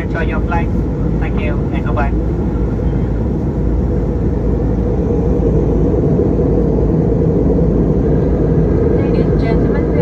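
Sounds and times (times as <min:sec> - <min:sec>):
airflow over fuselage: 0:00.0 - 0:10.0
jet engine drone in cabin: 0:00.0 - 0:10.0.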